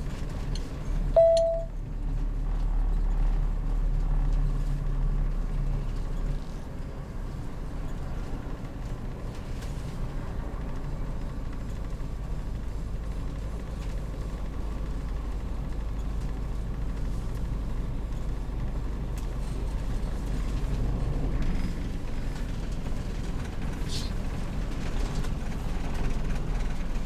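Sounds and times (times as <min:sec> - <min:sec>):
motorhome engine rumble: 0:00.0 - 0:27.0
sharp beep: 0:01.2 - 0:01.7.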